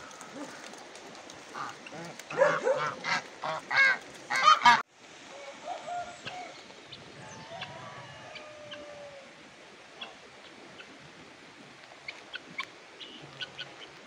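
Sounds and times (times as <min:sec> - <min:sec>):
geese honking: 0:01.4 - 0:04.8
chickens and fowl calling: 0:01.4 - 0:09.4.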